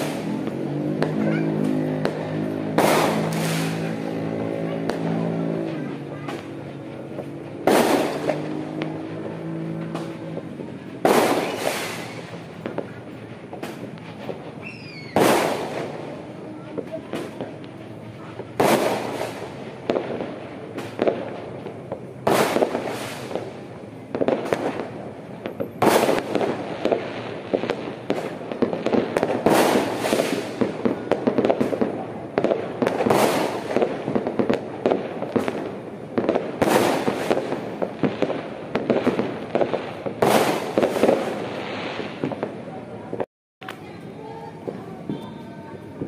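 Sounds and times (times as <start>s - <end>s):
firework bangs with echo: 0.0s - 46.0s
firework pops and crackles: 0.0s - 46.0s.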